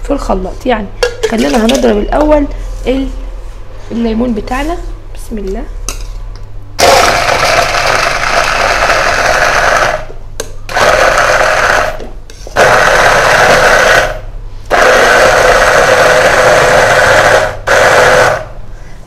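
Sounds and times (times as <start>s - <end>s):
hand blender running: 6.8s - 10.1s, 10.7s - 12.0s, 12.6s - 18.6s.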